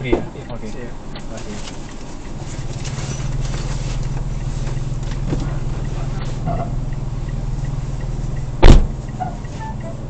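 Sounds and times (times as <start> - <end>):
car engine and road noise drone: 0.0 - 10.0.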